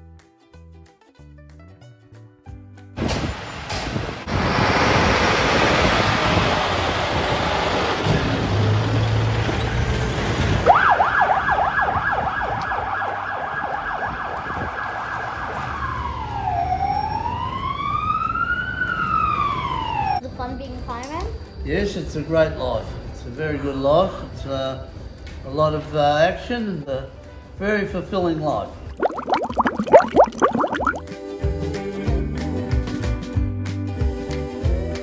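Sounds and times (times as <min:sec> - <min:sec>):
electronic siren: 0:10.7 - 0:20.2, 0:28.9 - 0:31.0.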